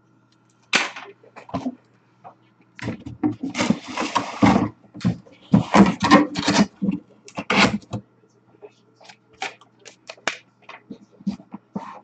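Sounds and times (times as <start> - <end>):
cardboard scraping and rustling: 2.8 - 7.9.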